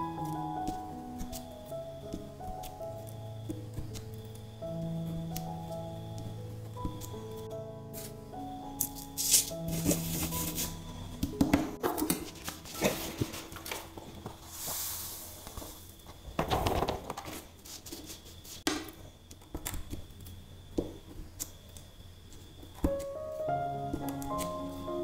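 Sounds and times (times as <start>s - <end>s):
sand sliding off paper: 9.2s - 10.8s, 14.4s - 16.0s, 17.6s - 18.7s.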